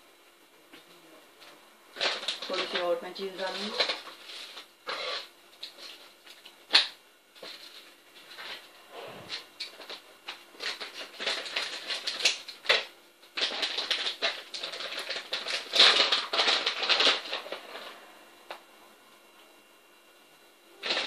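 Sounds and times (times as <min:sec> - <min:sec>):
plastic packet crinkling: 0:01.9 - 0:08.7, 0:09.3 - 0:18.0.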